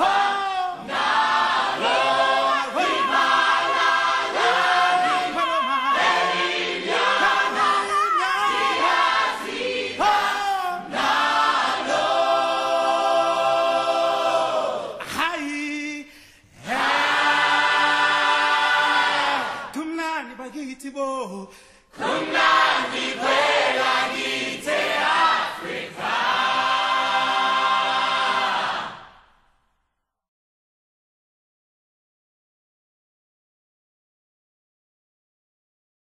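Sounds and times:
choir singing: 0.0s - 15.0s, 16.6s - 19.8s, 22.0s - 29.3s.

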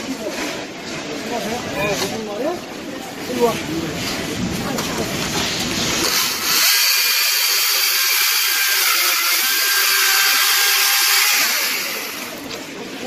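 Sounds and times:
chainsaw cutting log: 6.0s - 12.5s.

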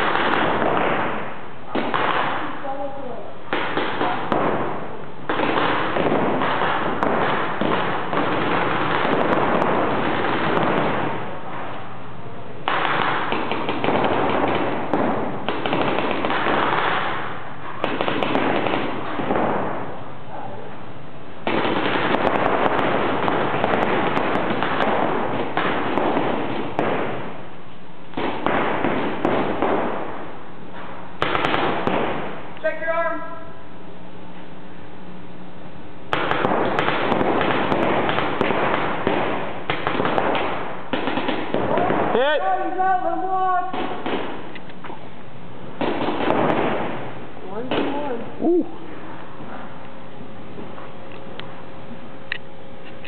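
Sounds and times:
paintball markers firing rapidly: 5.3s - 11.1s, 12.7s - 17.2s, 17.8s - 19.6s, 21.5s - 27.2s, 36.2s - 42.3s, 43.7s - 44.5s.

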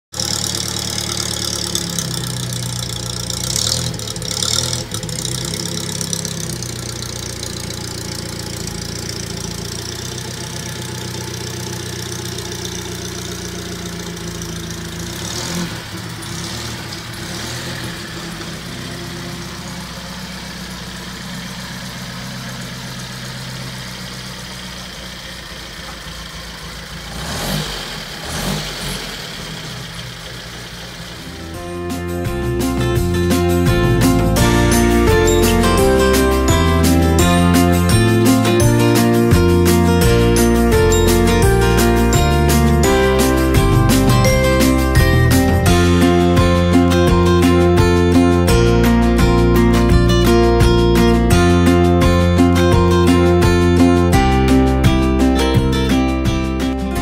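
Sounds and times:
car engine running at low revs: 0.0s - 57.0s.

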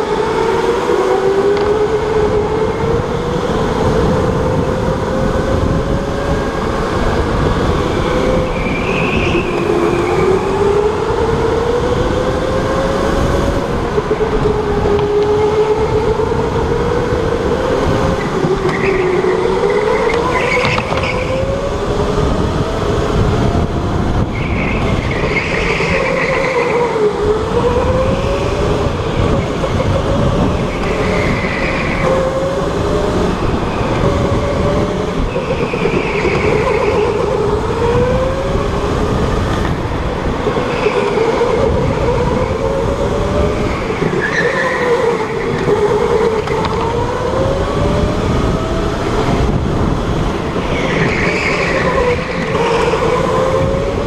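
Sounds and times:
wheels and chassis rumble: 0.0s - 54.0s
tyre squeals: 8.4s - 10.4s, 18.6s - 21.4s, 24.3s - 27.1s, 35.2s - 37.4s, 43.6s - 46.5s, 50.6s - 53.3s.

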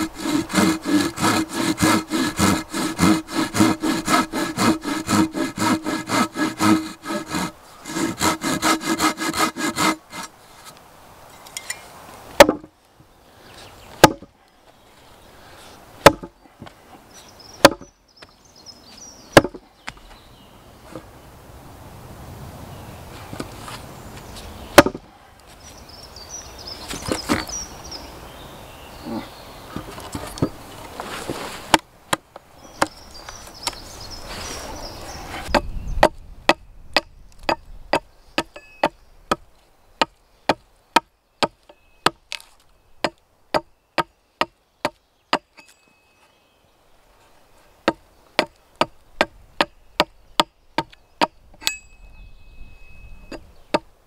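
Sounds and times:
axe chopping wood: 12.4s - 12.7s, 14.0s - 14.3s, 16.0s - 16.3s, 17.6s - 17.9s, 19.4s - 19.6s, 24.8s - 25.0s
rustling: 29.1s - 31.8s, 32.9s - 35.5s.

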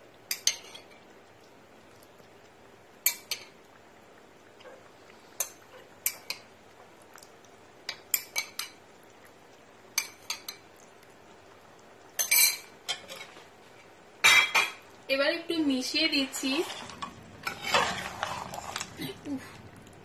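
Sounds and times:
metal spoon clinking on pot: 0.3s - 1.0s, 3.0s - 3.5s, 7.9s - 8.8s, 10.0s - 10.6s, 12.2s - 13.3s.

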